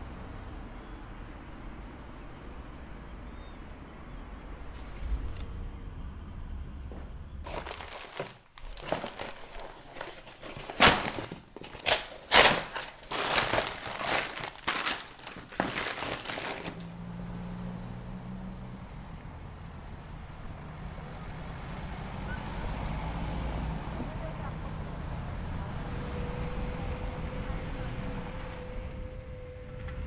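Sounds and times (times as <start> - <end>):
plastic bag crinkling: 7.4 - 17.0.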